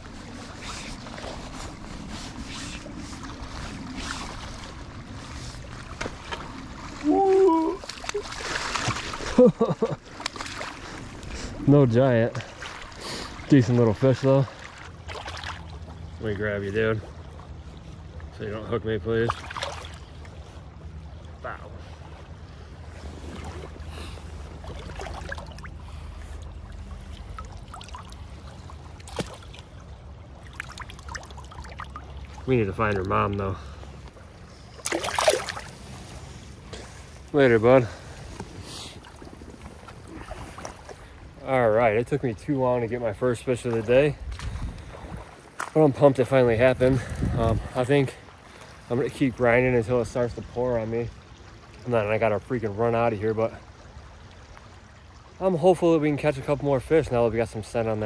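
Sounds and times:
flowing river water: 0.0s - 58.0s
fish splashing at surface: 34.8s - 35.9s.

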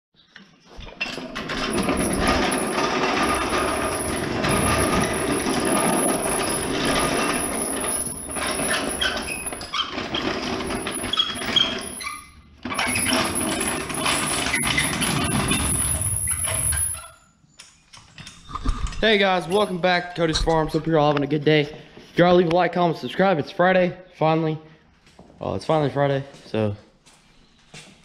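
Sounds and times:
jack wheels clattering on concrete: 0.8s - 17.2s.

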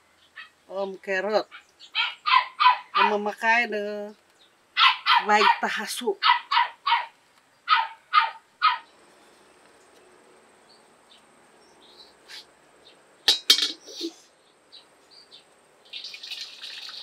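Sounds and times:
dog barking: 1.5s - 3.2s, 4.8s - 8.9s
metal wok clattering: 13.3s - 14.0s.

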